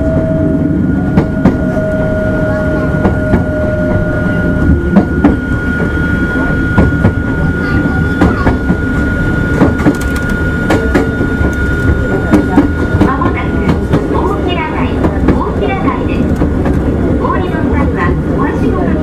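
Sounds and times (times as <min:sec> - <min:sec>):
railcar rumble: 0:00.0 - 0:19.0
wheels clicking on track: 0:09.6 - 0:14.4.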